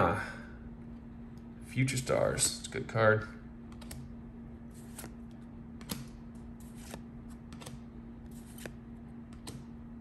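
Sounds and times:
cards sliding and snapping: 4.7s - 9.7s.

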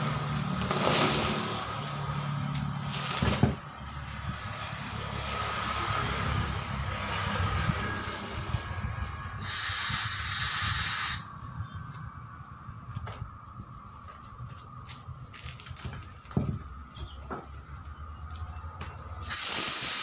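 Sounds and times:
low steady rumble: 6.2s - 19.2s
compressed air hissing: 9.2s - 11.4s, 19.2s - 20.0s.

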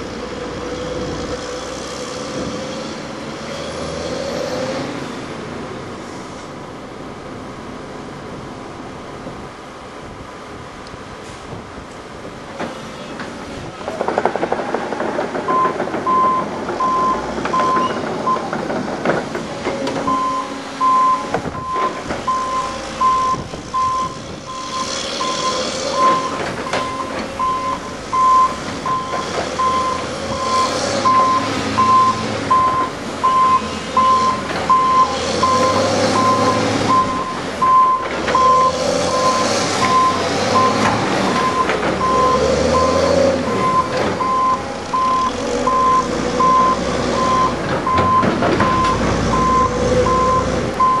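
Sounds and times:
diesel engines working: 0.0s - 51.0s
reversing alarm beeping: 15.5s - 18.5s, 20.0s - 51.0s.

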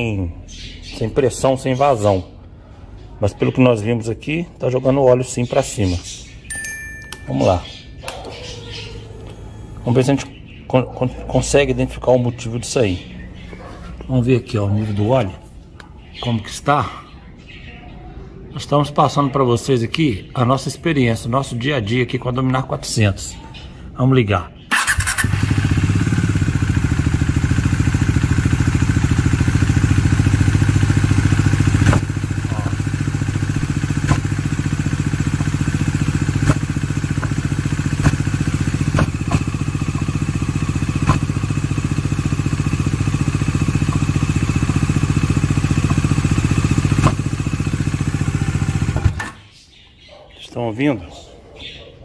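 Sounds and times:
motorcycle engine idling: 5.8s - 10.7s, 24.7s - 49.5s
sharp engine knock: 36.4s - 38.3s, 38.9s - 39.6s, 46.9s - 47.4s.

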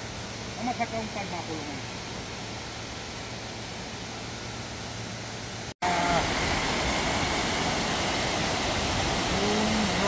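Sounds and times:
water pouring over dam: 5.8s - 10.0s.

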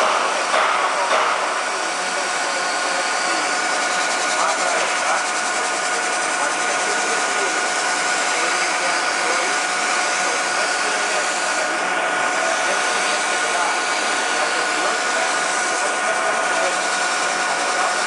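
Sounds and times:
metal lathe whining: 0.0s - 18.0s.

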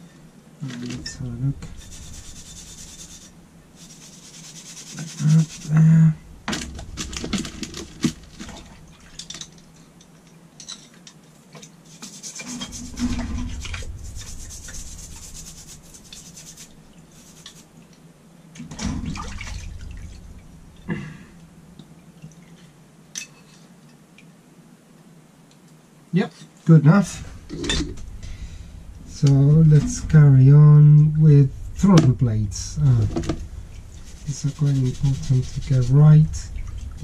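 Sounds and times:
toothbrush scrubbing: 1.6s - 5.9s, 11.9s - 17.7s, 34.0s - 36.5s
dull bumps: 6.1s - 9.2s, 18.6s - 21.8s, 27.0s - 37.0s
liquid splashing and dripping: 18.6s - 22.7s, 36.4s - 37.0s.

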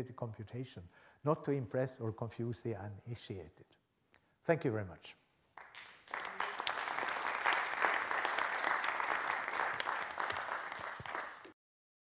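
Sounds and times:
audience applauding: 5.6s - 11.6s.

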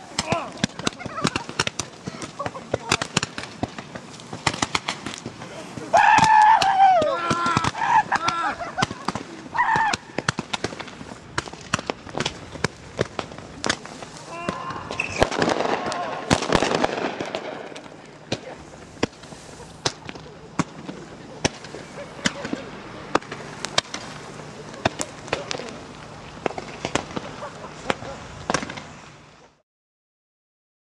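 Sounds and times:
firecrackers cracking: 0.0s - 29.6s
high-pitched yells: 5.9s - 8.6s, 9.5s - 10.0s.

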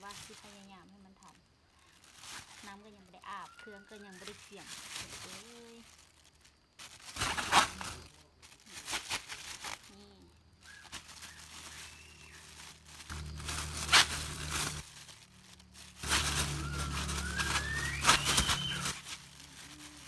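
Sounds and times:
plastic bag crinkling: 0.0s - 20.0s.

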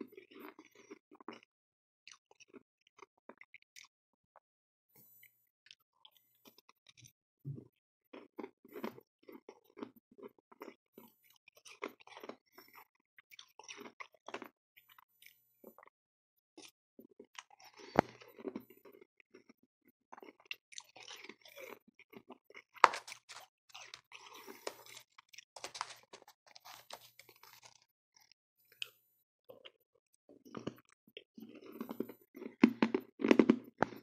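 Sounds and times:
crunching frost while chewing: 11.5s - 14.6s, 16.6s - 28.3s, 30.4s - 34.0s.

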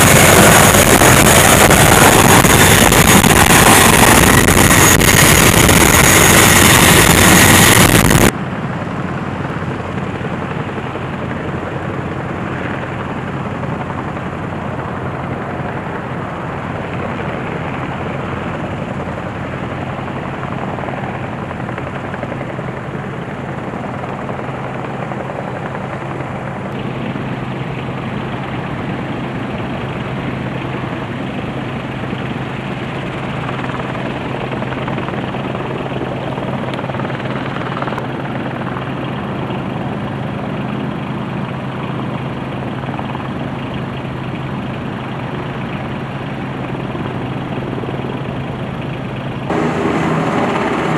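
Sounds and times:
loud rushing roar: 0.0s - 8.3s, 49.5s - 50.9s
helicopter rotor and engine: 0.0s - 50.9s.

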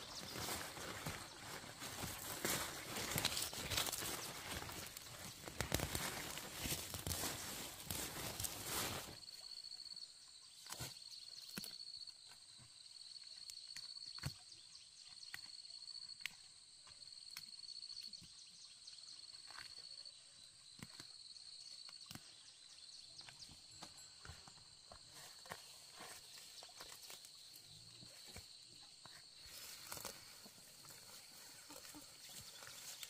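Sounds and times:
weeds snapping as pulled: 2.4s - 8.6s.

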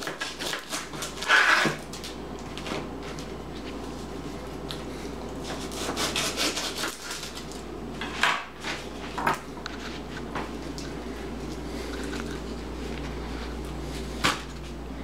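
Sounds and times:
knife cutting onion: 0.0s - 2.0s, 5.4s - 8.8s.

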